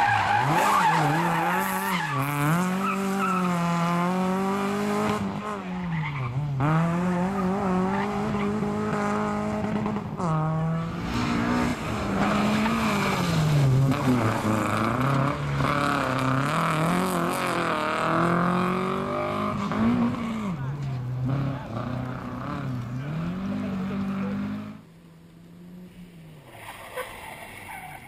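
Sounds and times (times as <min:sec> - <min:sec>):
rally car engines revving: 0:00.0 - 0:28.0
tyre squeal: 0:26.5 - 0:28.0.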